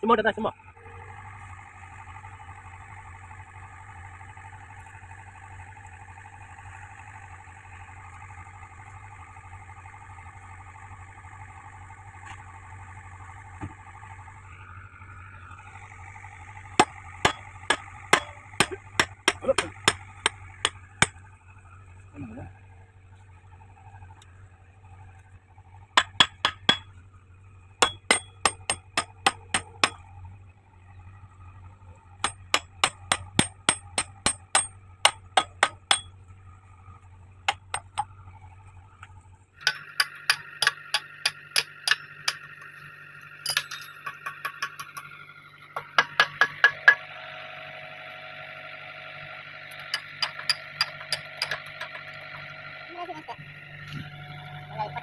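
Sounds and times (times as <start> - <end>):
hammer striking steel pins: 16.8 - 21.2, 26.0 - 26.9, 27.8 - 30.0, 32.2 - 36.1, 37.5 - 38.1, 39.6 - 42.8, 43.4 - 45.0, 45.8 - 47.0, 49.7 - 52.2.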